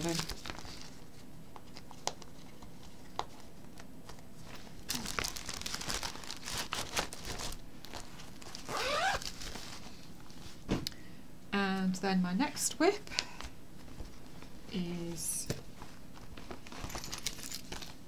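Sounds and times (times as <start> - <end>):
plastic sheet crinkling: 0.0 - 10.5.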